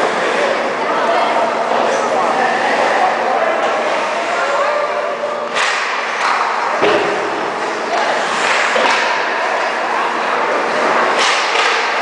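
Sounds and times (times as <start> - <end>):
hockey stick or puck knocks: 5.6 - 7.3.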